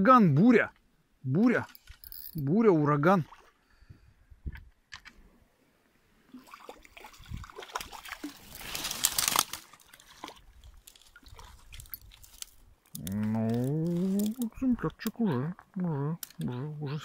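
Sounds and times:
fish splashing in water: 6.3 - 12.4.

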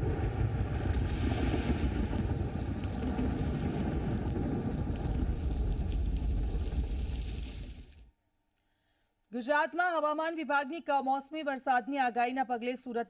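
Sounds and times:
heavy rain and wind: 0.0 - 8.1.

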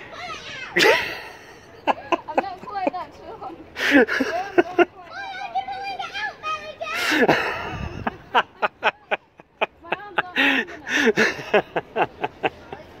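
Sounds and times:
person laughing: 0.8 - 2.4, 7.0 - 12.8.

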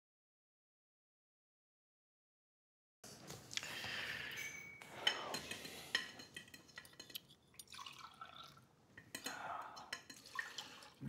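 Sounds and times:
fork clinking against plate: 4.3 - 7.4, 9.0 - 10.7
wine trickling into glass: 6.2 - 8.6, 9.2 - 11.0.

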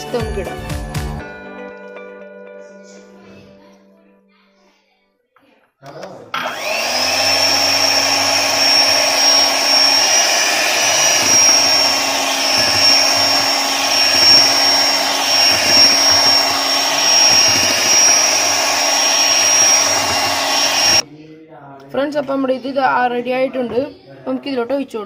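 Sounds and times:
electric hand mixer whining: 6.4 - 21.0.

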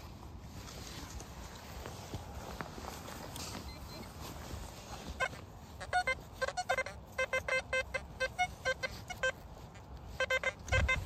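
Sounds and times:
metal detector beeps: 3.5 - 4.4, 5.0 - 9.4, 10.1 - 11.0.

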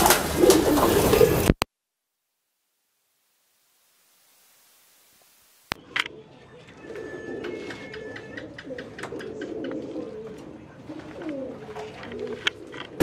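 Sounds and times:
pigeons cooing: 0.0 - 1.6, 5.8 - 13.0.

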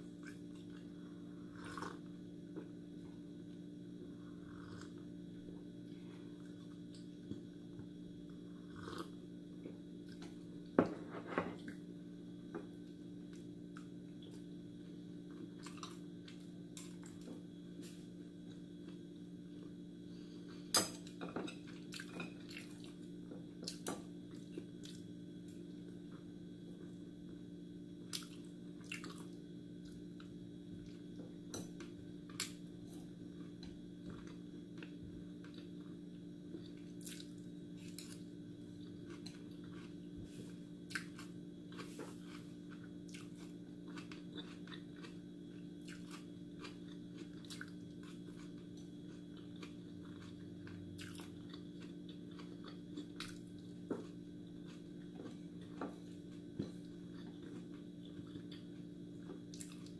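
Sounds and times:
steady low hum: 0.0 - 59.9
person chewing: 0.2 - 2.1, 8.6 - 9.2, 21.6 - 23.0, 31.7 - 59.9.

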